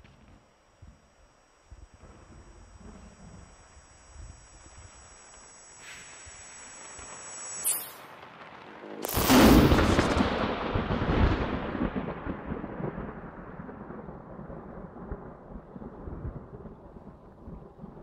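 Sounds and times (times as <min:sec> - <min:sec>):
thunder crack and rumble: 0:08.1 - 0:18.0.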